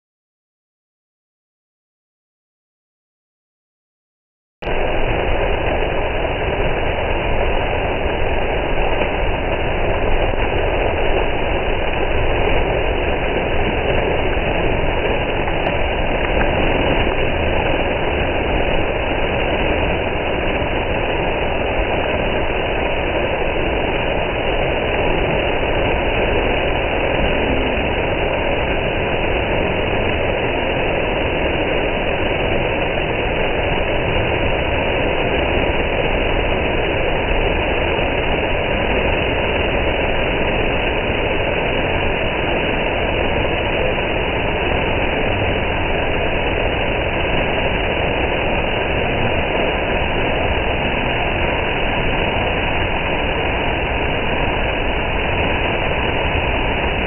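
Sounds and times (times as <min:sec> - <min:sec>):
waterfall crashing onto rocks: 0:04.7 - 0:57.0.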